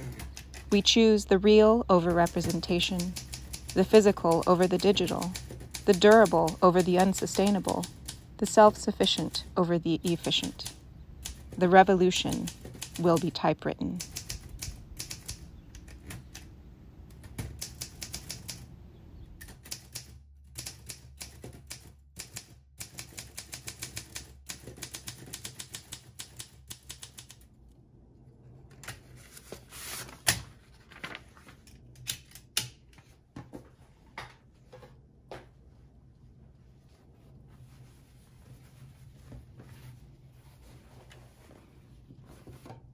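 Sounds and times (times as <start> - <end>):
manual typewriter typing: 0.0 - 0.8, 2.0 - 16.5, 17.1 - 18.7, 19.4 - 27.4.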